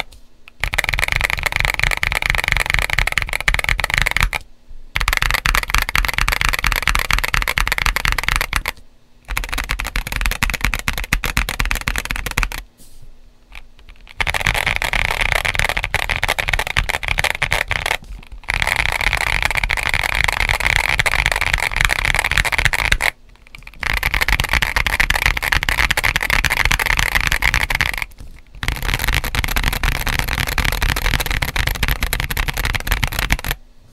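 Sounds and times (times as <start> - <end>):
fast typing on mechanical keyboard: 0.0 - 4.4, 5.0 - 12.6, 13.5 - 33.6.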